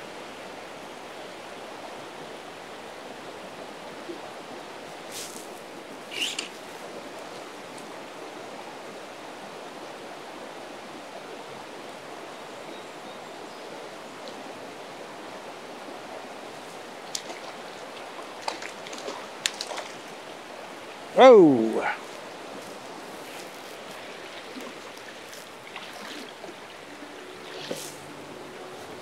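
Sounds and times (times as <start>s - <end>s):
river rushing over rocks: 13.8s - 29.0s.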